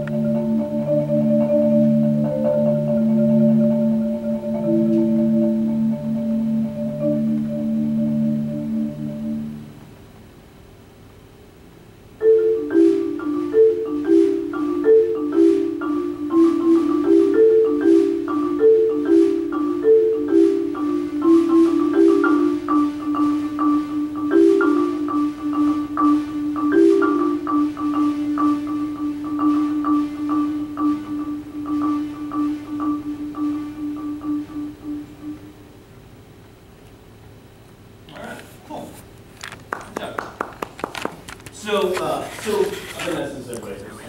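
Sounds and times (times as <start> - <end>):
marimba played with mallets: 0.0 - 9.7, 12.2 - 35.6.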